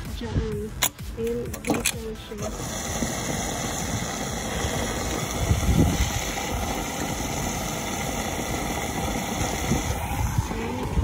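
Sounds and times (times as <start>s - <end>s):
fuel rushing into car tank: 2.4s - 11.0s.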